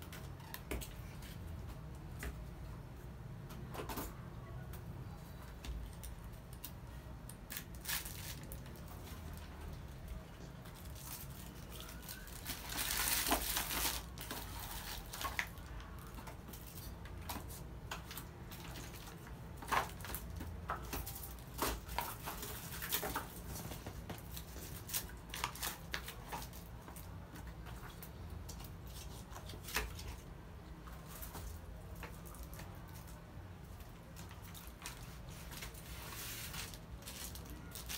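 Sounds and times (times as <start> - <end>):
plastic bags crinkling: 7.4 - 9.5, 10.6 - 27.1, 31.0 - 37.9.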